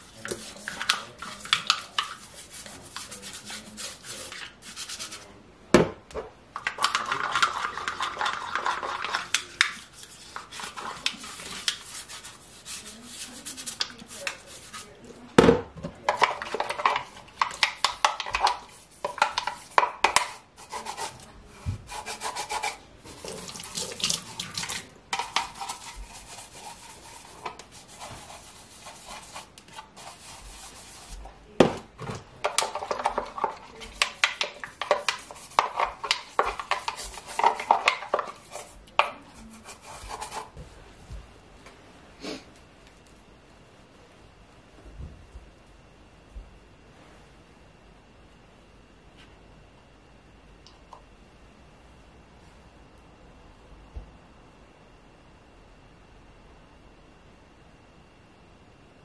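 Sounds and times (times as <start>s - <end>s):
toothbrush scrubbing plastic: 0.0s - 5.3s, 6.6s - 15.0s, 16.1s - 31.3s, 32.4s - 40.6s.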